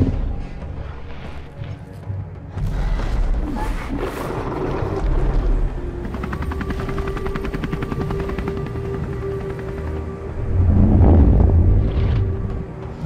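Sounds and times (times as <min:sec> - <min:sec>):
low rumble: 0:10.2 - 0:13.0.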